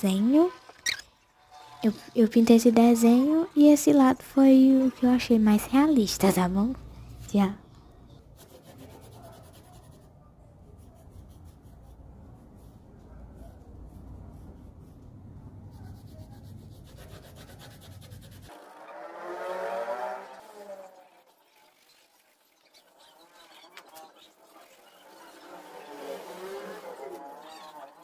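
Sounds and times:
pencil scratching on paper: 0:08.2 - 0:10.1, 0:10.7 - 0:18.6, 0:26.5 - 0:27.7.

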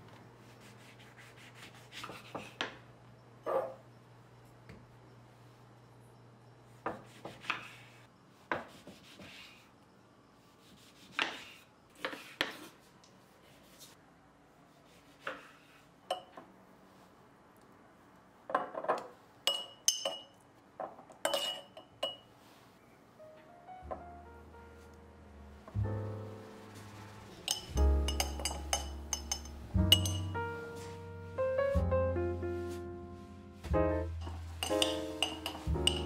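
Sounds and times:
glass jar clinks: 0:19.5 - 0:20.4, 0:27.5 - 0:30.4, 0:34.2 - 0:36.0.

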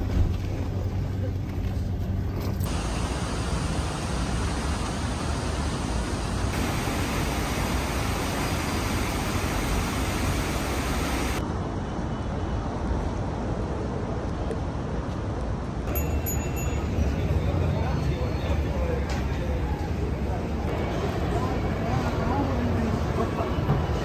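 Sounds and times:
traffic rushing: 0:02.6 - 0:14.1.

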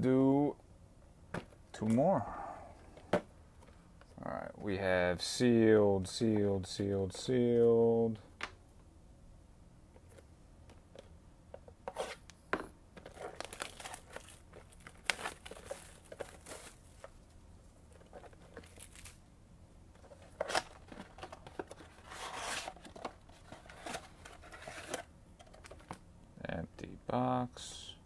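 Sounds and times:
packaging rustle: 0:13.0 - 0:17.2, 0:17.9 - 0:19.2
card box tearing and crinkling: 0:13.1 - 0:16.8, 0:20.3 - 0:25.1.

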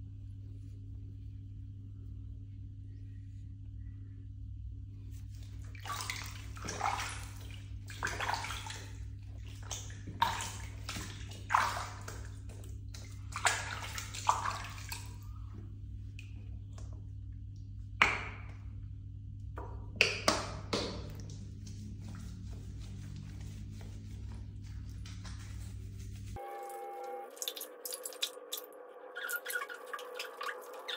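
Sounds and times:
water splashing in a plastic tub: 0:05.2 - 0:18.8, 0:19.6 - 0:25.7, 0:27.3 - 0:28.6.

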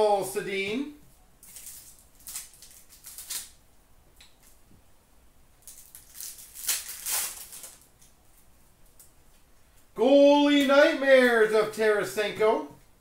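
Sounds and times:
foil wrappers crinkling: 0:01.4 - 0:03.6, 0:05.6 - 0:08.1.

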